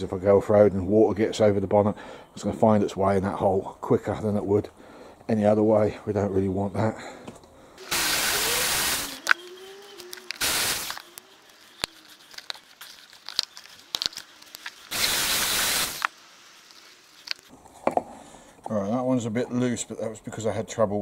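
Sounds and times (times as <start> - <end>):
cordless drill running: 7.8 - 12.4, 14.5 - 16.1.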